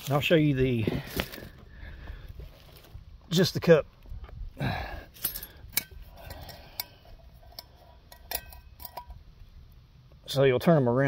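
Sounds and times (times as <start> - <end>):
metal tent stakes clinking: 4.8 - 9.4.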